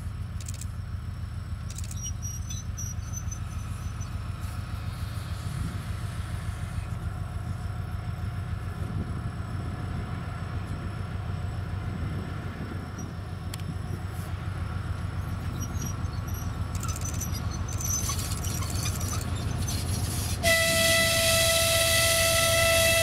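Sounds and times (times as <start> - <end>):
diesel locomotive engine drone: 0.0 - 23.0
train wheel squeaks and clicks: 1.7 - 4.2, 15.3 - 20.6
locomotive horn blast: 20.4 - 23.0.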